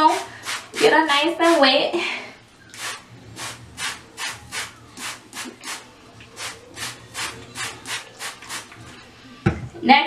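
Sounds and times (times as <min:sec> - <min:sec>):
spray bottle hissing: 0:00.0 - 0:01.0, 0:02.7 - 0:08.8.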